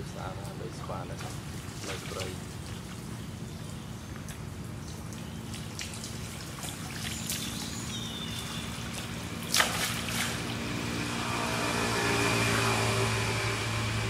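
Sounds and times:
steady low hum: 0:00.0 - 0:14.0
water splashing and trickling: 0:00.0 - 0:14.0
loud splash: 0:05.5 - 0:10.7.

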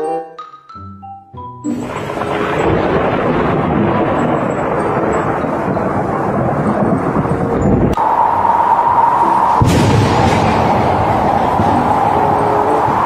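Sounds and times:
mallet percussion music: 0:00.0 - 0:03.1
loud steady rumbling noise: 0:01.8 - 0:13.0.

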